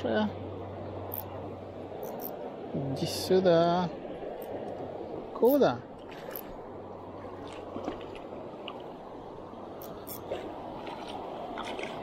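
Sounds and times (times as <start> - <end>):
river water flowing over stones: 0.4 - 12.0.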